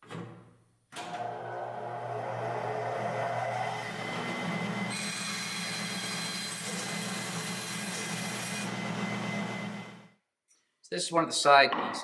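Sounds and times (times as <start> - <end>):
bandsaw motor hum: 1.0 - 10.1
saw blade cutting wood: 3.4 - 8.9.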